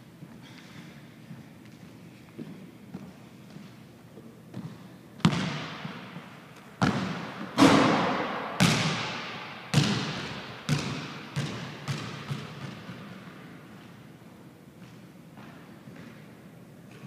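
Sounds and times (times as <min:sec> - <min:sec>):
basketball bouncing on wooden floor: 0:04.5 - 0:06.2, 0:06.8 - 0:13.4.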